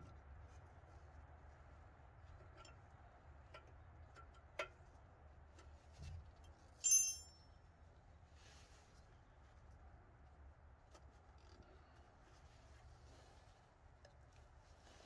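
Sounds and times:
bright metal clink: 0:06.8 - 0:07.4.

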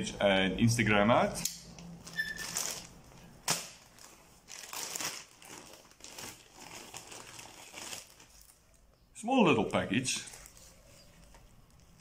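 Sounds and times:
plastic satchel rustling and crinkling: 0:02.0 - 0:08.8, 0:09.6 - 0:12.0.

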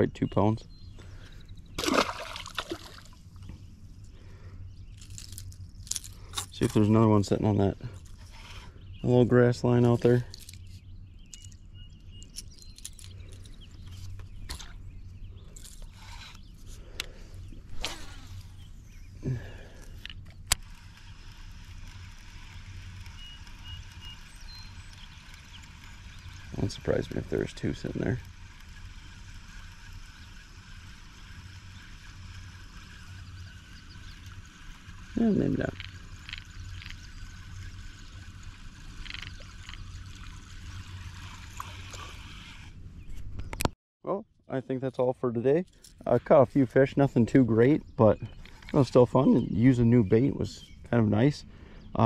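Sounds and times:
bait gurgling and splashing water: 0:01.8 - 0:03.2, 0:38.9 - 0:42.6
fishing reel cranking: 0:19.9 - 0:42.8.

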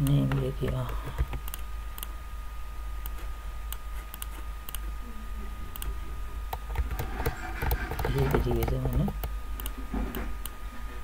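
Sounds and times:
computer keyboard typing: 0:00.0 - 0:01.6, 0:06.5 - 0:09.8
steady low hum: 0:00.0 - 0:11.0.

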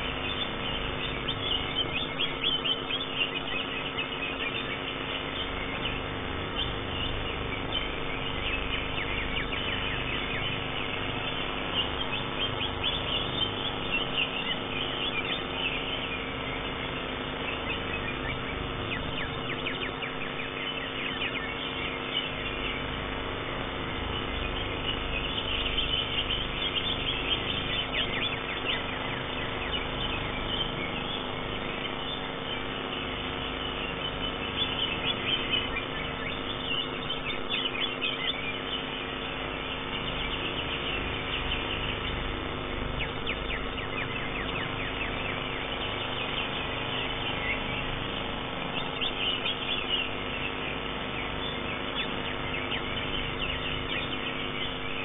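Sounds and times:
bird singing high chirps and trills: 0:00.0 - 0:55.0
steady low hum: 0:00.0 - 0:55.0.

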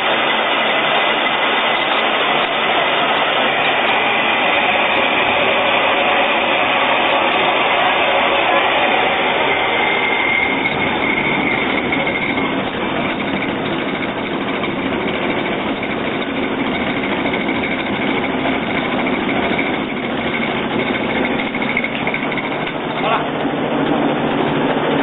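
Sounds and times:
faint high whine: 0:00.0 - 0:14.6
grinding mill running: 0:00.0 - 0:25.0.

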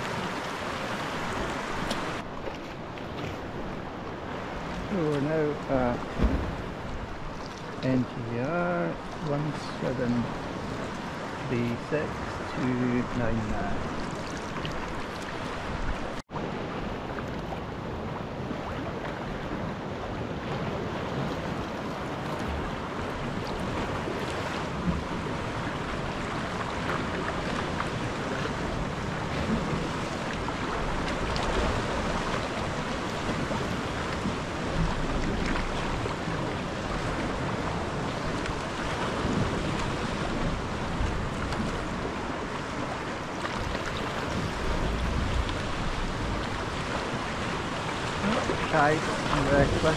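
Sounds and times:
water lapping and splashing: 0:00.0 - 0:49.9
wind on microphone: 0:10.1 - 0:49.9.

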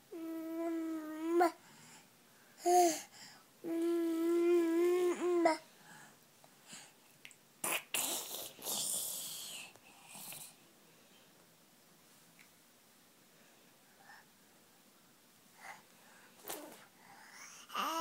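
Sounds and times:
toddler vocalizing: 0:17.4 - 0:18.0.

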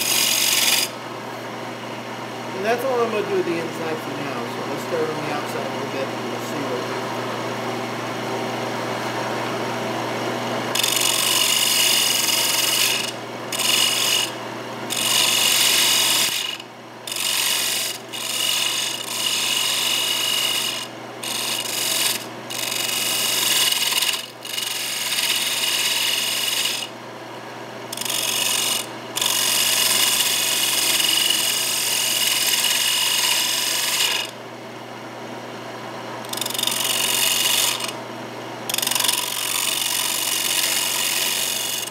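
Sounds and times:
turning tool scraping wood: 0:00.0 - 0:01.0, 0:10.7 - 0:14.3, 0:14.9 - 0:26.9, 0:27.9 - 0:34.4, 0:36.3 - 0:38.0, 0:38.7 - 0:41.9
wood lathe humming: 0:00.0 - 0:27.0, 0:27.9 - 0:34.4, 0:36.2 - 0:38.0, 0:38.6 - 0:41.9.

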